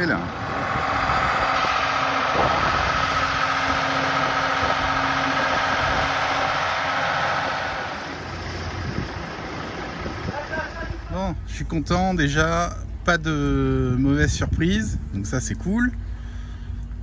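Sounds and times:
engine running with whine: 0.0s - 17.0s.

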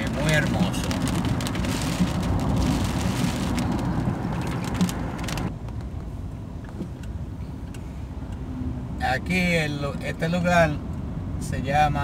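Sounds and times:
rain on car roof: 0.0s - 5.5s
car road and engine rumble: 0.0s - 12.0s.

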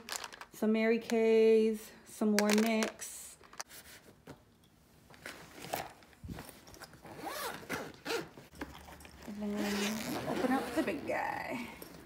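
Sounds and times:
zipper pulled on nylon bag: 7.0s - 8.3s, 9.2s - 11.3s.

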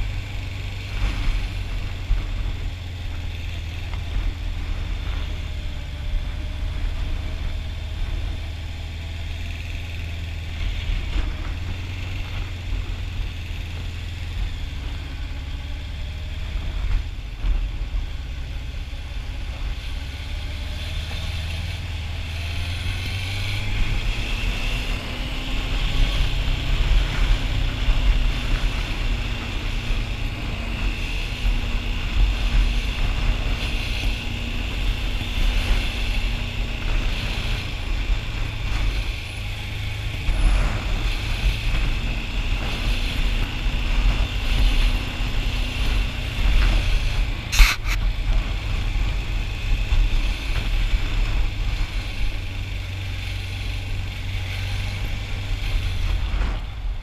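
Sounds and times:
motorcycle engine running: 0.0s - 57.0s
wind noise: 16.1s - 57.0s.

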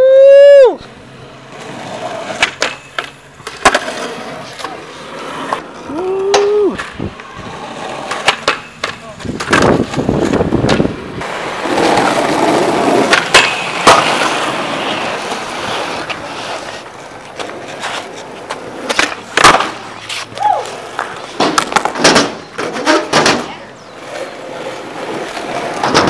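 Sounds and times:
person shouting: 0.0s - 0.8s, 5.9s - 6.8s, 20.4s - 20.7s
skateboard wheels rolling on concrete: 0.0s - 26.0s
skateboard clacks: 0.8s - 26.0s.

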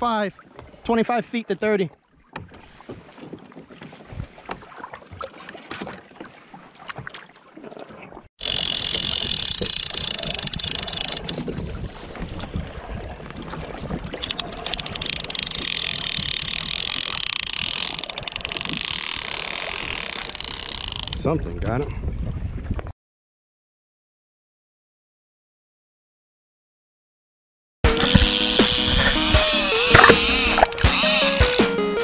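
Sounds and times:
water lapping around kayak: 0.0s - 22.9s, 27.9s - 31.6s
wind and water rushing on microphone: 0.0s - 22.9s.

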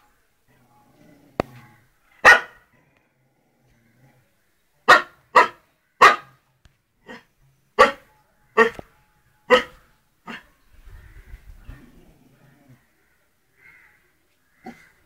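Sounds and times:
dog barking: 2.2s - 2.6s, 4.9s - 6.4s, 7.8s - 8.0s, 8.6s - 8.8s, 9.5s - 10.5s.

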